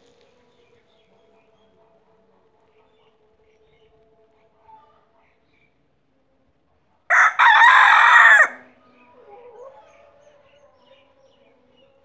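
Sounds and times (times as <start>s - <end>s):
rooster crowing: 7.1s - 8.6s.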